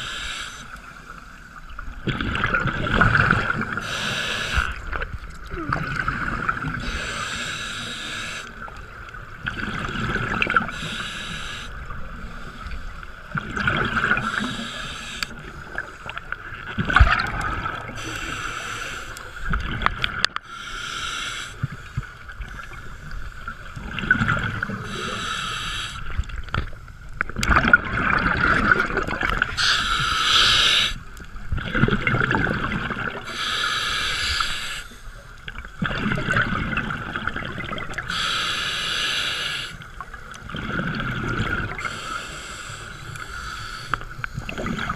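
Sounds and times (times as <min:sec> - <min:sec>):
scuba regulator inhalation hiss: 0:00.0 - 0:00.8, 0:03.8 - 0:04.8, 0:06.8 - 0:08.6, 0:10.6 - 0:12.9, 0:14.1 - 0:15.4, 0:18.0 - 0:19.5, 0:20.5 - 0:22.0, 0:24.8 - 0:26.2, 0:29.6 - 0:31.0, 0:33.2 - 0:35.2, 0:38.1 - 0:39.9, 0:41.8 - 0:44.4
exhaled bubbles rumbling: 0:01.6 - 0:07.2, 0:08.5 - 0:10.8, 0:13.2 - 0:14.7, 0:15.3 - 0:18.0, 0:21.7 - 0:25.2, 0:26.1 - 0:33.4, 0:35.4 - 0:38.1, 0:39.8 - 0:42.0, 0:44.1 - 0:44.9.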